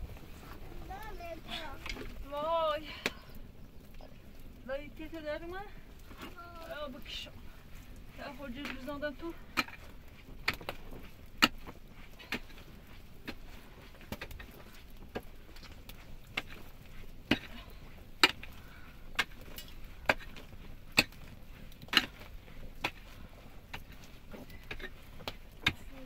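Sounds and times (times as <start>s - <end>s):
faint steady background: 0.0s - 26.0s.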